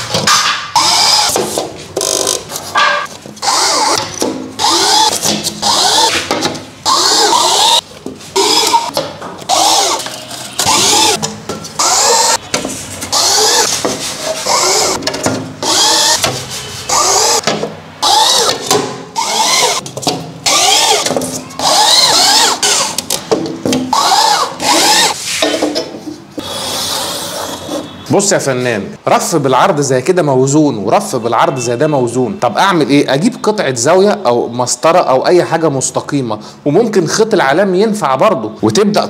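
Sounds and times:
cordless drill revving: 19.2s - 19.8s, 20.5s - 22.9s.

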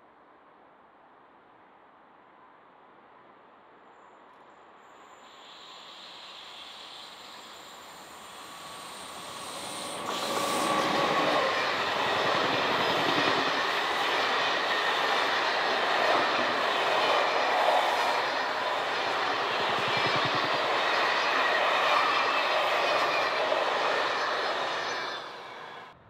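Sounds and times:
passenger train passing: 4.9s - 26.0s
wheels clattering on rails: 9.5s - 25.9s.

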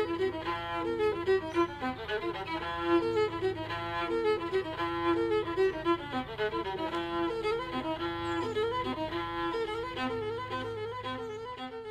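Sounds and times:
fiddle tune: 0.0s - 11.9s.

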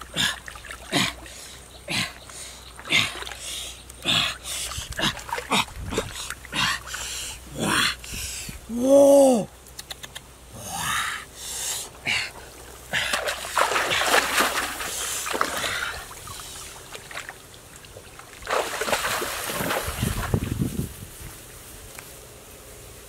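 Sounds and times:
water splashing from wading: 4.1s - 6.6s, 12.6s - 20.6s.

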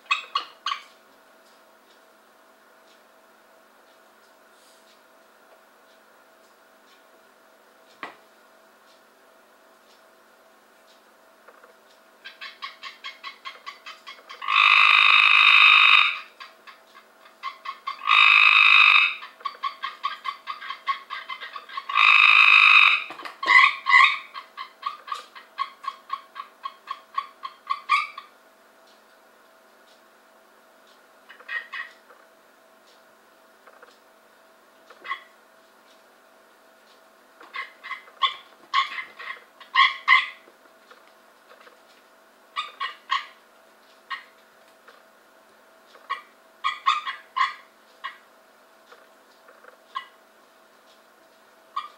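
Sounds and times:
tree frog short repeated notes: 12.3s - 16.4s, 17.4s - 28.3s
tree frog trill: 12.3s - 28.3s, 37.4s - 41.7s.

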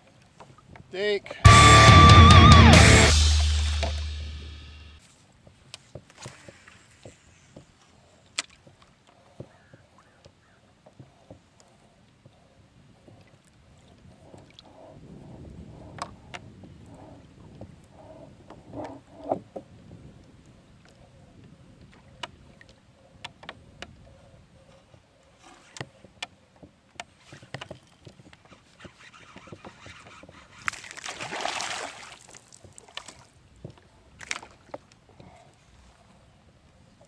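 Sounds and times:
clicks and knocks on plastic kayak: 25.7s - 30.8s.

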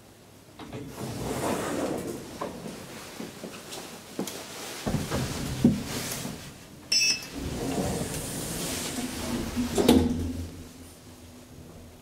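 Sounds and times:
elevator doors sliding shut: 0.6s - 2.7s, 7.0s - 12.0s
short electronic beep: 6.9s - 7.3s.

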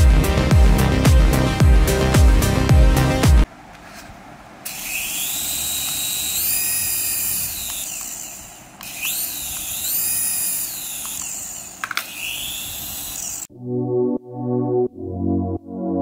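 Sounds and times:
small electric motors whining: 4.6s - 13.5s.

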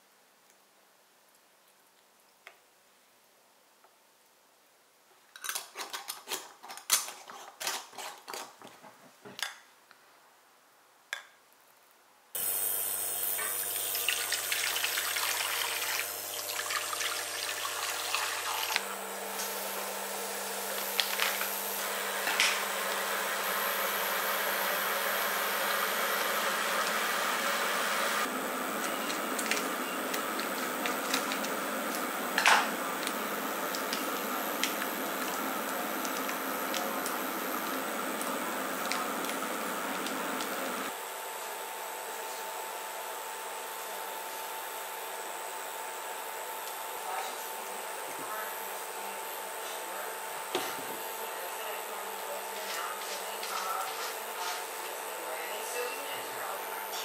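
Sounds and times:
pot bubbling: 12.4s - 40.9s.

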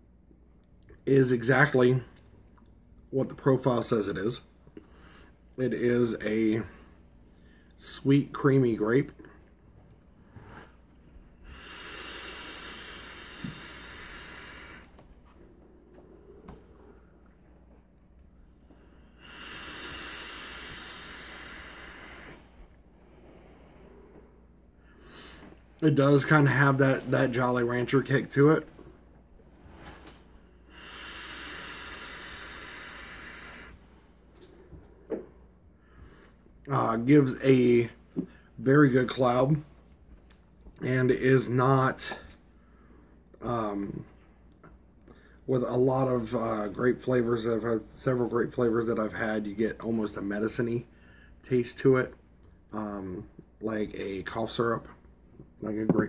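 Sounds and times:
person breathing: 4.8s - 5.5s, 6.6s - 7.8s, 10.2s - 17.6s, 18.5s - 25.8s, 29.7s - 36.6s, 42.1s - 43.2s, 50.9s - 51.4s
hiss of air drawn through vape: 10.4s - 17.0s, 18.7s - 24.2s, 24.9s - 28.0s, 29.6s - 35.0s
soft exhale of vapor: 11.4s - 17.2s, 18.7s - 25.7s, 29.6s - 36.4s.

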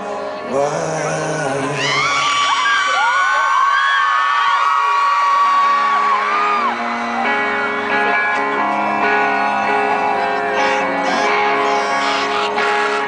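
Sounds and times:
fans whooping and screaming: 1.7s - 13.0s
live rock band playing: 5.3s - 13.0s
sustained guitar chords: 5.4s - 13.0s.

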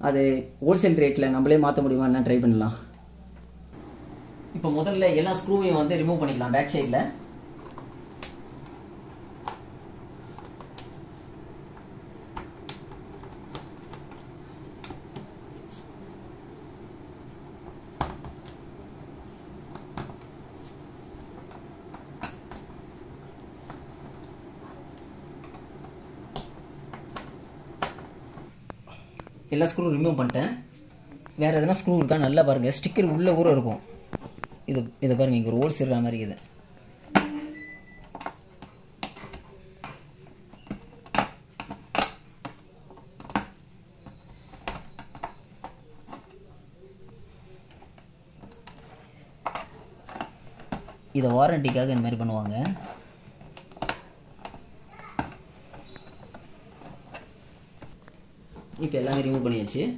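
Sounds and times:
steady low hum: 2.8s - 29.6s.

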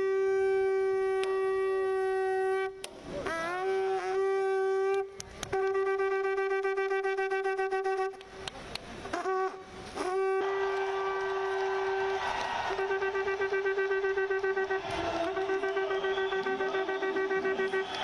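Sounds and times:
conch shell blasts: 0.0s - 8.2s, 9.1s - 18.0s.

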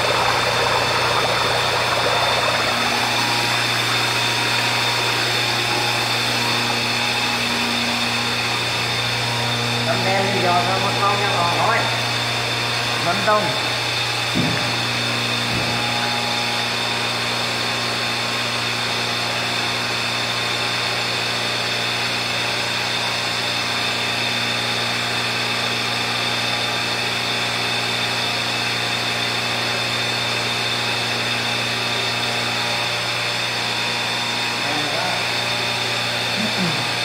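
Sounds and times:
air blower motor hum: 0.0s - 37.0s.

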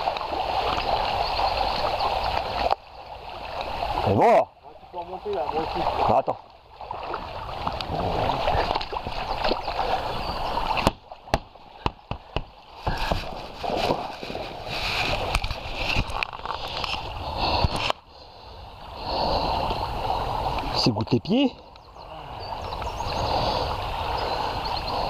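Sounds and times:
river water rushing and sloshing: 0.0s - 25.0s
knocks and bumps from a boat: 10.7s - 14.2s.

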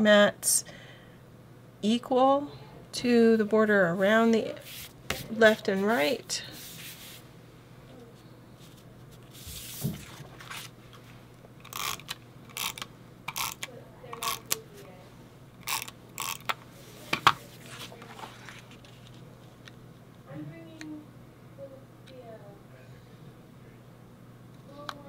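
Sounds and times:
paper sliding and rustling: 6.5s - 7.2s, 8.7s - 11.1s, 16.9s - 19.1s
tape runner rasping: 11.6s - 14.6s, 15.6s - 16.6s.

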